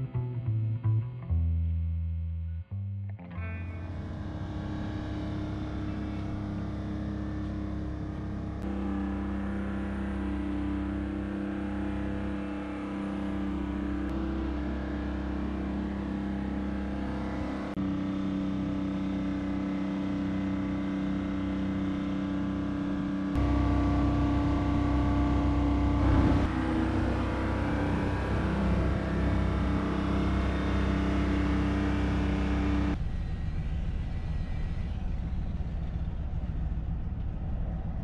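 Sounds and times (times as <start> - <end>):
lift engine droning: 3.2 - 38.0.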